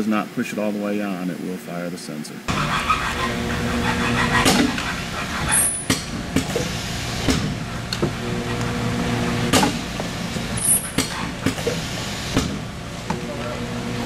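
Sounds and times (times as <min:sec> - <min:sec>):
machine humming: 0:02.5 - 0:14.0
tooling head clicks and knocks: 0:04.3 - 0:06.7.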